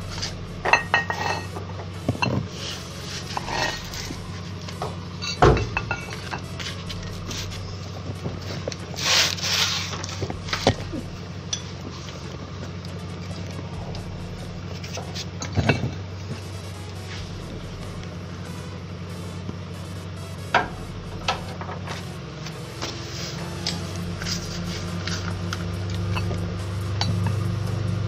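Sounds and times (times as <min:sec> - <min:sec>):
steady low hum: 0:00.0 - 0:28.0
metal hand tools clinking: 0:00.1 - 0:04.1, 0:04.7 - 0:06.8.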